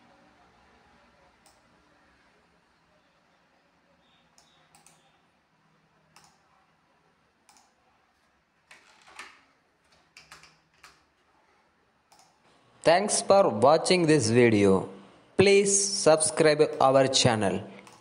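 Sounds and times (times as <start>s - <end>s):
faint irregular clicks: 4.3s - 5.1s, 6.1s - 6.5s, 7.4s - 7.8s, 12.1s - 12.6s, 17.8s - 18.0s.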